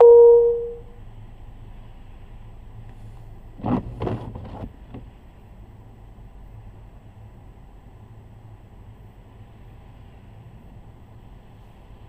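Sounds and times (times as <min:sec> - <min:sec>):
electronic beep: 0:00.0 - 0:00.8
car cabin hum: 0:00.0 - 0:06.9
knocks and clunks: 0:03.6 - 0:05.2.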